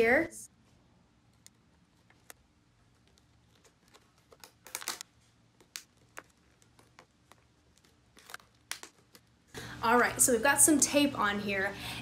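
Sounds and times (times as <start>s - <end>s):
duct tape crackling and ripping: 3.0s - 9.3s.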